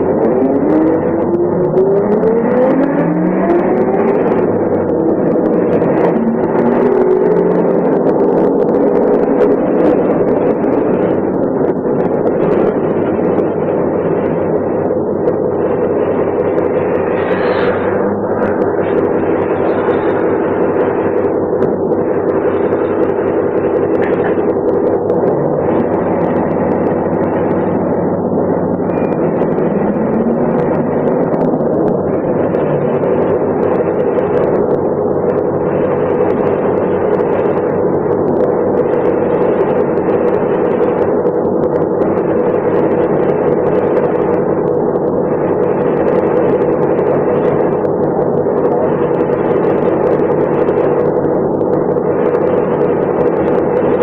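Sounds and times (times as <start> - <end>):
rising tone: 0.0 - 35.4
bus diesel engine running: 0.0 - 54.0
rushing noise: 0.0 - 54.0.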